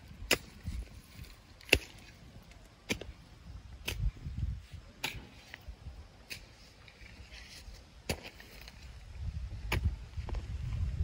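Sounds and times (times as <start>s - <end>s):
dull thud and scrape: 9.6s - 10.8s.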